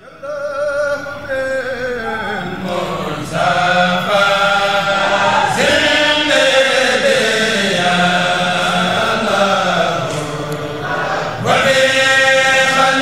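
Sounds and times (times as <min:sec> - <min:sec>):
group chanting religious song: 0:00.0 - 0:13.0.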